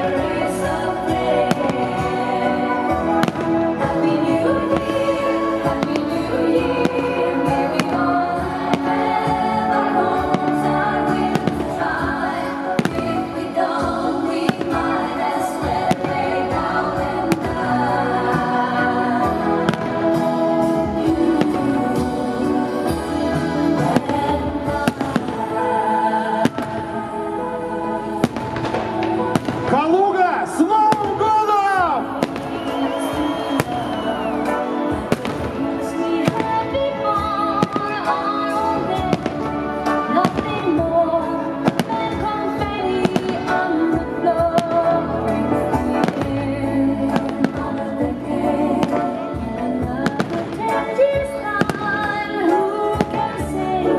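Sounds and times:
fireworks bursting: 0.0s - 27.1s, 28.1s - 30.0s, 30.9s - 40.9s, 41.5s - 45.0s
music: 0.0s - 53.9s.

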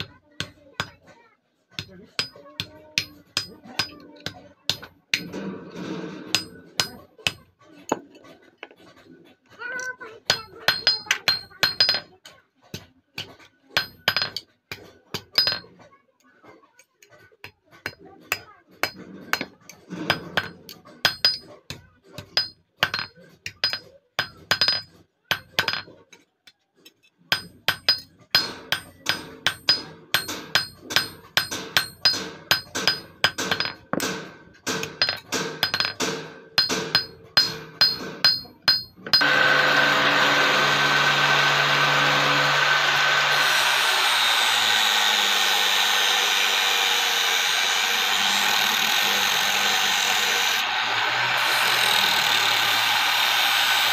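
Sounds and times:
hammer tapping metal on anvil: 1.8s - 5.5s, 6.3s - 8.1s, 10.3s - 15.7s, 17.4s - 25.9s, 27.3s - 39.5s
angle grinder whirring: 39.2s - 53.9s.

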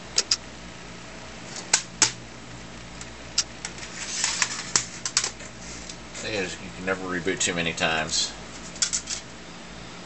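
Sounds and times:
computer mechanical clicks: 0.2s - 0.4s.

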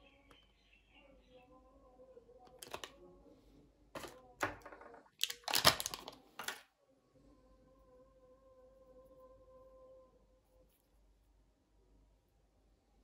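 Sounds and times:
plastic packaging crinkling: 2.6s - 2.9s, 4.0s - 6.6s
faint steady hum: 6.1s - 13.0s.

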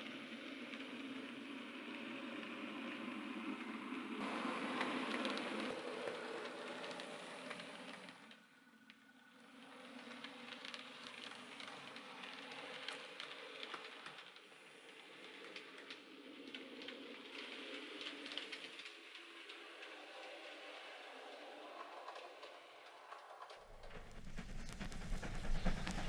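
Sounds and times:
model train rolling whirr: 4.2s - 8.4s, 21.4s - 26.0s.

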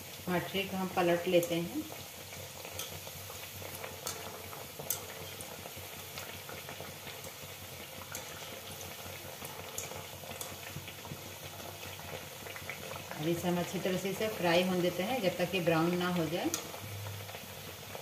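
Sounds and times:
dough deep-frying in hot oil: 0.0s - 18.0s.

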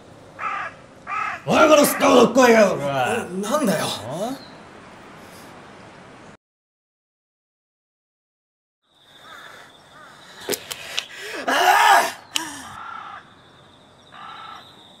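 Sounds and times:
crows cawing: 0.4s - 3.0s, 9.2s - 13.4s, 14.1s - 14.7s
small birds chirping: 0.4s - 6.0s, 8.9s - 15.0s
sharp clicks: 10.4s - 11.1s, 12.3s - 12.5s.

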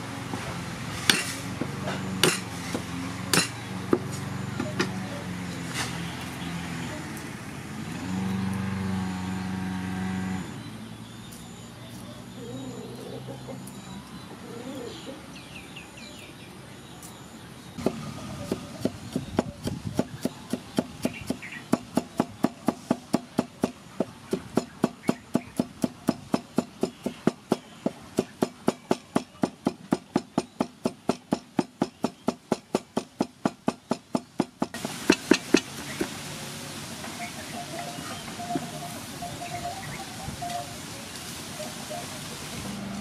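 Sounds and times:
cleaver chopping on wooden block: 1.1s - 1.3s, 2.2s - 4.1s, 17.8s - 36.1s.

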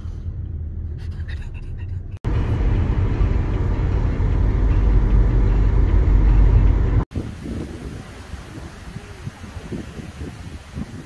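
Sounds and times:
car cabin road and engine rumble: 0.0s - 7.4s.

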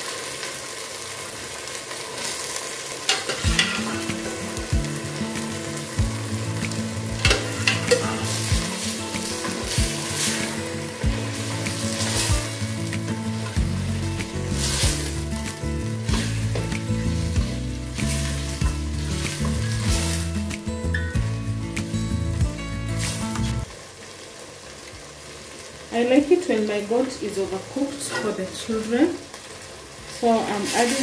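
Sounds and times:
meat sizzling in a pot: 0.0s - 31.0s
ladle and spoon knocking on pot: 3.1s - 4.0s, 7.2s - 8.2s
background music with steady beat: 3.4s - 23.7s.

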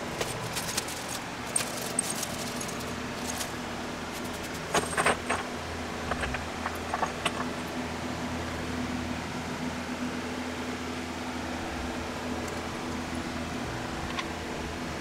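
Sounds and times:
small metal parts clinking: 0.0s - 7.9s
steady low hum: 0.0s - 15.0s.

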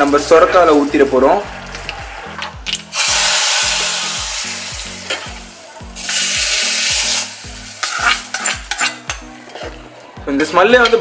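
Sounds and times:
hot oil sizzling: 0.0s - 9.7s
metal ladle scraping pot: 6.0s - 9.8s.

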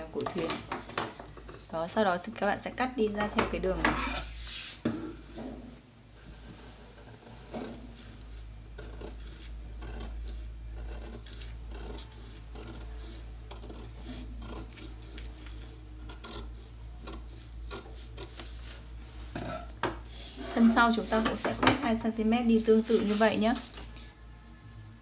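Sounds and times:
low steady hum: 0.0s - 25.0s
scissors cutting paper: 8.8s - 18.8s.

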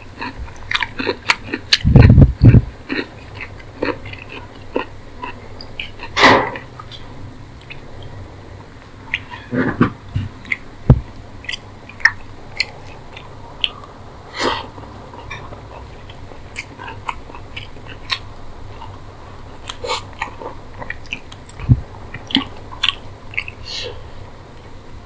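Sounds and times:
chewing and wet mouth clicks: 0.1s - 6.2s, 7.6s - 8.1s, 9.1s - 9.4s, 10.4s - 10.6s, 11.4s - 14.0s, 14.7s - 19.0s, 19.6s - 23.6s
low thumps: 9.5s - 11.2s, 21.6s - 22.0s.

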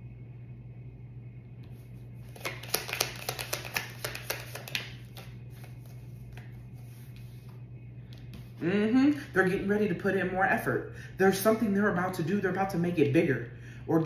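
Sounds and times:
cards being shuffled: 1.6s - 8.6s.

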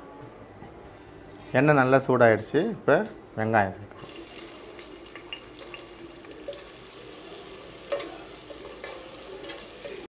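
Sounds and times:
onions sizzling in hot oil: 4.0s - 10.0s.

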